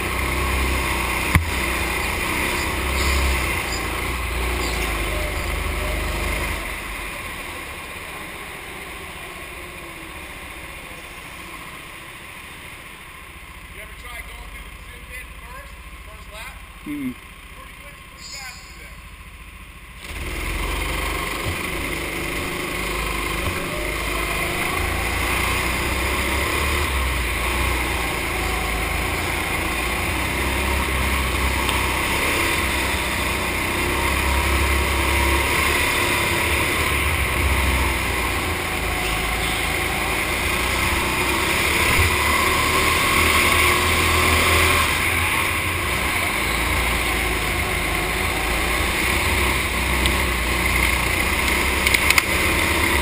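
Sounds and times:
go-kart engine droning: 0:00.0 - 0:53.0.

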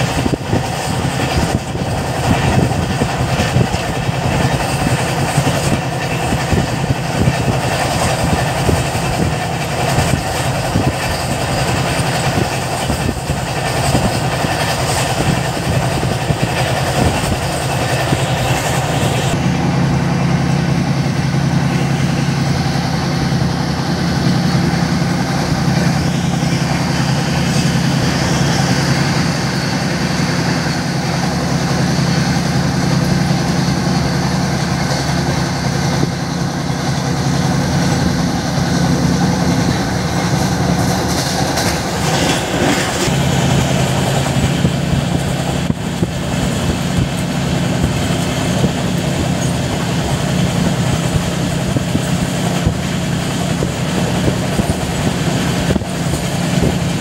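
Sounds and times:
train wheels running on rails: 0:00.0 - 0:57.0.

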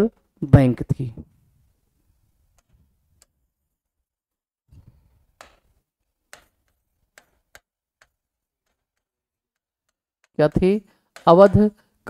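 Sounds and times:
chalk tapping on blackboard: 0:05.4 - 0:12.0.

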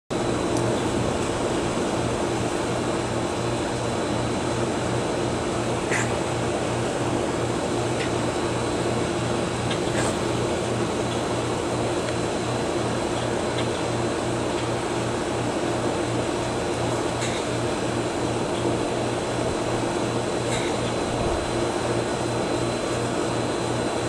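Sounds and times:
machine hum and whir: 0:00.1 - 0:24.0.

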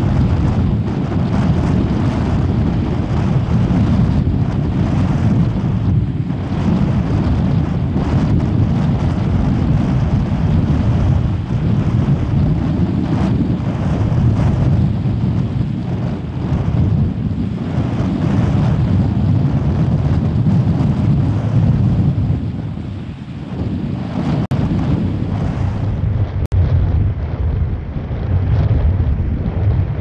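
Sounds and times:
gusty wind on microphone: 0:00.0 - 0:30.0.

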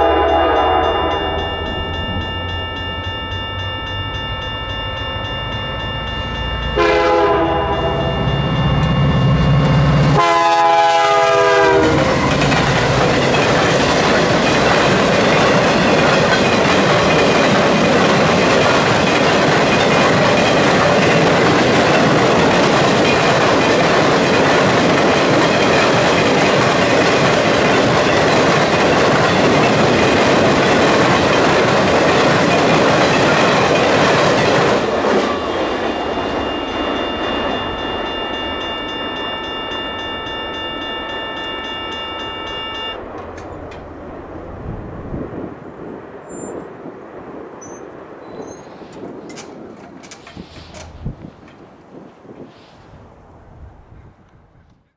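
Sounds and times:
locomotive horn blasts: 0:00.0 - 0:01.4, 0:06.8 - 0:08.2, 0:10.0 - 0:12.2
crossing bell ringing: 0:00.0 - 0:43.9
train wheels clickety-clack: 0:09.6 - 0:38.1, 0:48.4 - 0:51.7.

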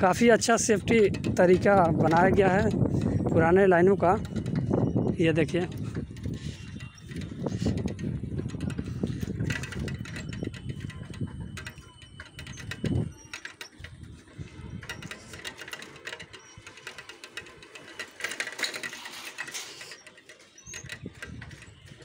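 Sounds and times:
bicycle freewheel clicking and rattling: 0:00.0 - 0:22.0.

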